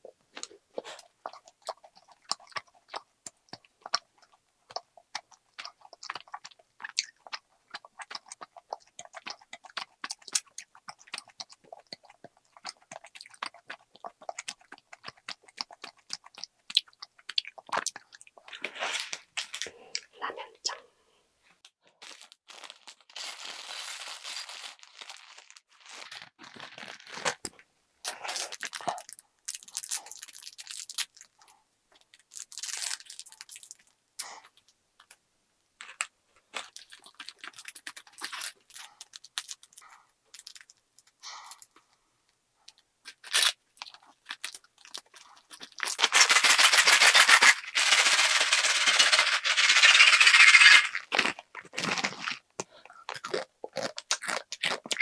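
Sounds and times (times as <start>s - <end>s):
plastic packet crinkling: 21.8s - 31.4s, 32.1s - 33.9s, 35.8s - 41.1s, 43.1s - 52.4s
dry noodles rattling in bag: 45.7s - 51.3s.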